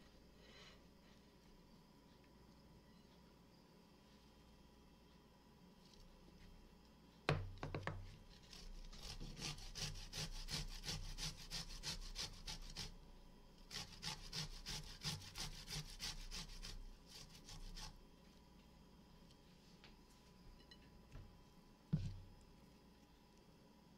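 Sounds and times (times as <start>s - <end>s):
garlic rasping on grater: 8.5s - 13.0s, 13.7s - 18.0s.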